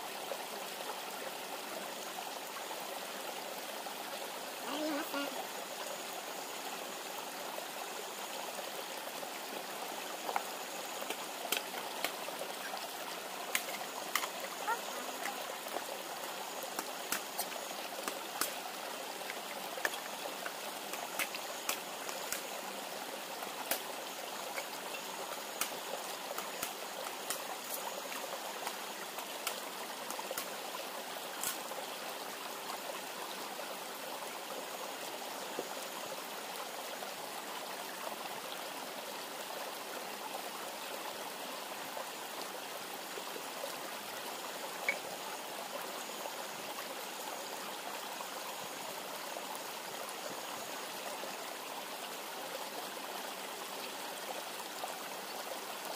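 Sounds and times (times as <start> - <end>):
campfire crackling and popping: 13.4 - 15.4.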